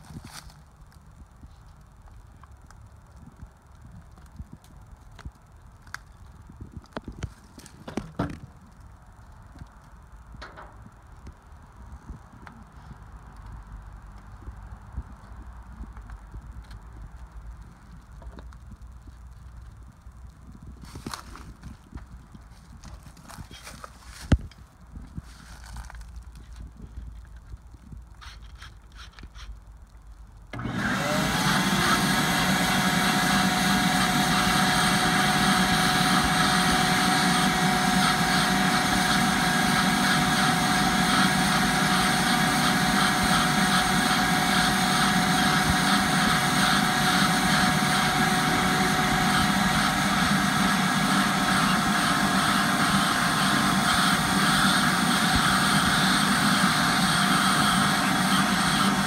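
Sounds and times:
cordless drill turning: 0:30.5 - 0:59.0
shop vacuum motor whining: 0:30.5 - 0:59.0.

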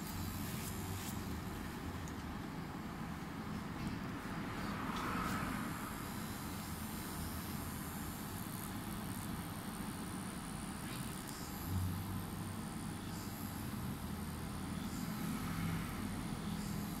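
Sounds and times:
tattoo machine humming: 0:00.0 - 0:17.0.

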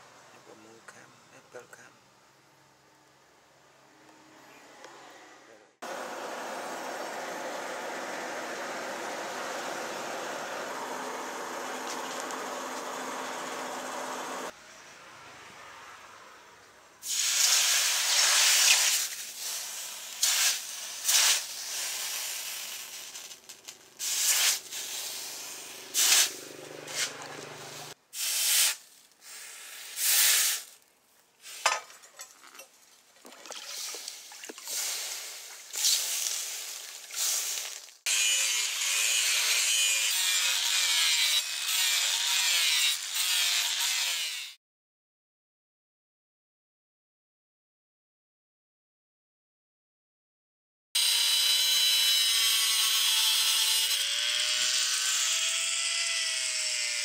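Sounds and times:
grinder on steel blade: 0:22.3 - 0:28.0, 0:38.1 - 0:44.6, 0:51.0 - 0:57.0.

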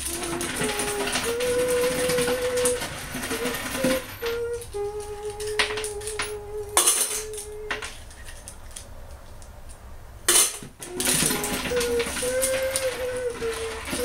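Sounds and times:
background music with held notes: 0:00.0 - 0:08.1, 0:10.8 - 0:14.0
nails clattering against magnet: 0:05.3 - 0:08.9, 0:10.3 - 0:14.0.

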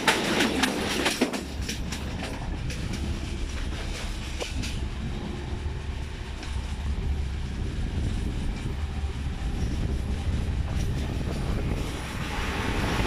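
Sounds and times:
wheels clicking over rail joints: 0:00.0 - 0:05.3, 0:08.4 - 0:13.0
train wheels rumbling on rails: 0:00.0 - 0:13.0.

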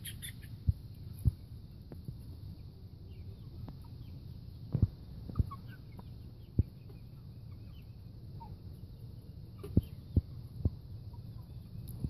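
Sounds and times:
hen clucking: 0:00.0 - 0:01.2, 0:05.2 - 0:12.0.

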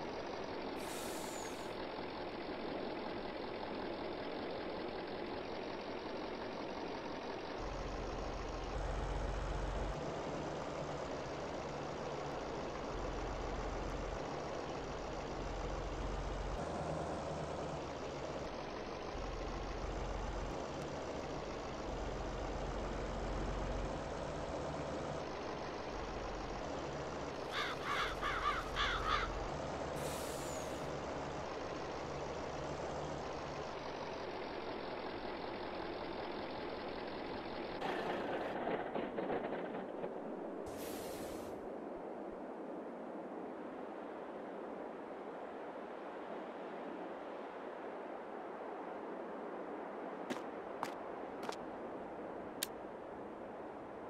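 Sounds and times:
truck engine running: 0:00.0 - 0:41.8, 0:50.3 - 0:53.6
air brake hiss: 0:00.8 - 0:01.7, 0:30.0 - 0:30.8, 0:40.7 - 0:41.6.

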